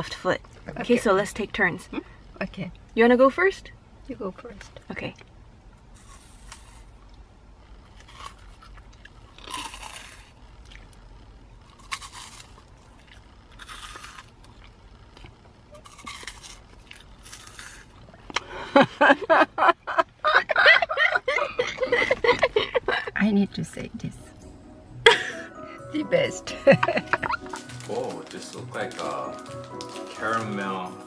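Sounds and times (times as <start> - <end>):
crunchy snack crunching: 5.9 - 7.0, 7.8 - 18.2, 27.2 - 30.9.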